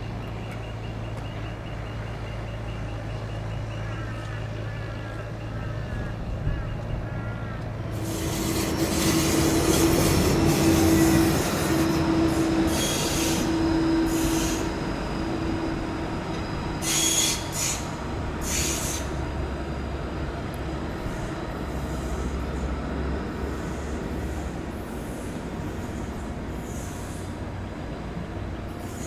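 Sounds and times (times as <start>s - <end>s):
tram motor hum: 0.0s - 29.0s
tram wheels screeching on rails: 7.6s - 29.0s.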